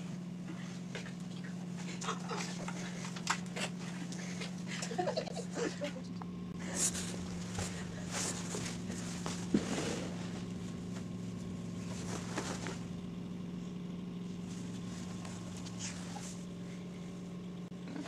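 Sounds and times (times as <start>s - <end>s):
steady low hum: 0.0s - 18.0s
faint rustles: 6.5s - 17.6s.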